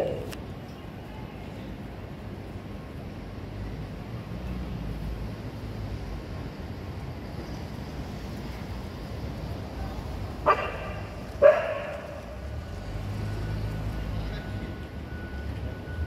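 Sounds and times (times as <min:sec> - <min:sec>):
dog barking: 0:10.4 - 0:12.3.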